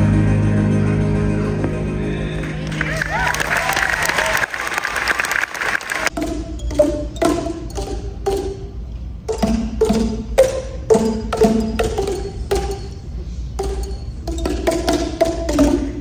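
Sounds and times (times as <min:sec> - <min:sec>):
plastic tubes struck in a tune: 0:06.1 - 0:16.0.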